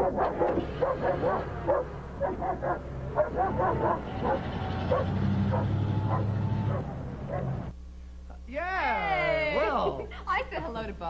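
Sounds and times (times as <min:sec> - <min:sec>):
dog barking and yelping: 0:00.0 - 0:07.6
car engine running: 0:00.1 - 0:07.8.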